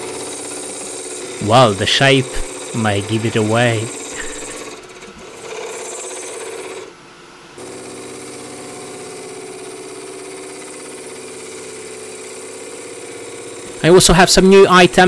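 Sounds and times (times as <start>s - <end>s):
turning tool scraping wood: 0.0s - 6.9s
wood lathe motor hum: 0.0s - 15.0s.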